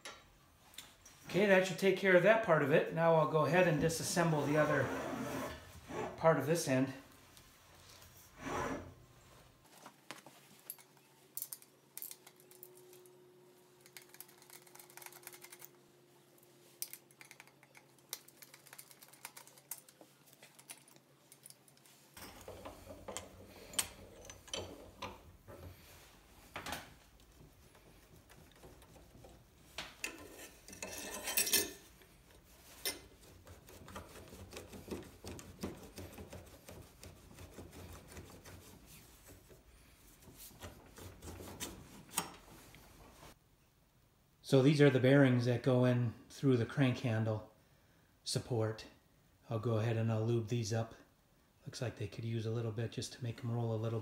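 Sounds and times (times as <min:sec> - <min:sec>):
hand tools clinking on steel: 0:30.0 - 0:31.8.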